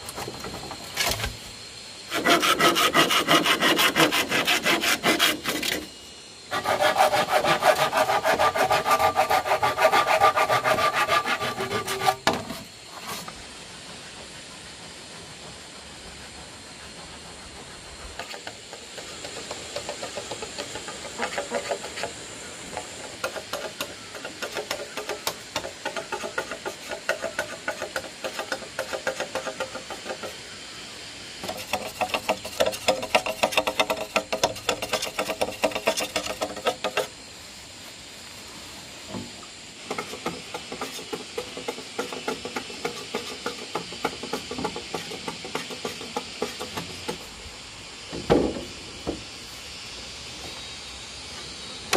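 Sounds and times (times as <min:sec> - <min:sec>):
hand saw cutting bamboo: 0:00.0 - 0:01.4, 0:02.1 - 0:05.9, 0:06.5 - 0:13.4, 0:18.2 - 0:30.4, 0:31.4 - 0:37.1, 0:39.9 - 0:47.2
machete scraping bamboo: 0:00.0 - 0:01.5, 0:02.1 - 0:05.9, 0:06.5 - 0:13.4, 0:18.2 - 0:30.4, 0:31.4 - 0:37.1, 0:39.9 - 0:47.3.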